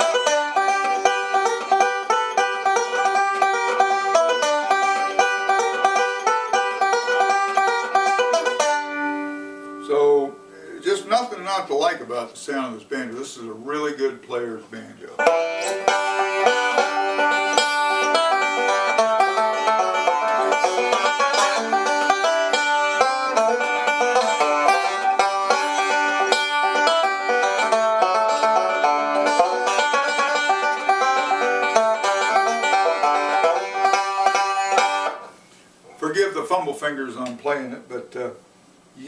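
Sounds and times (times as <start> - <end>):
banjo picking quick notes: 0.0 - 10.4, 15.2 - 35.4.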